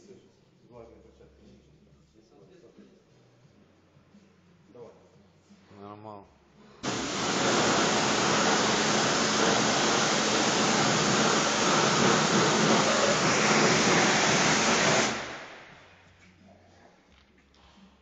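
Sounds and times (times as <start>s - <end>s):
pressure washer spray hissing: 6.8s - 15.8s.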